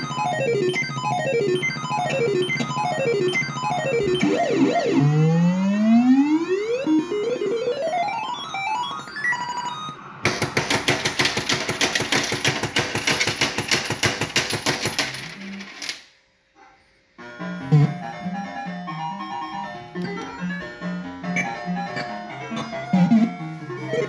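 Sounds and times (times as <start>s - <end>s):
rising stepped bleeping tones: 0.0s - 10.1s.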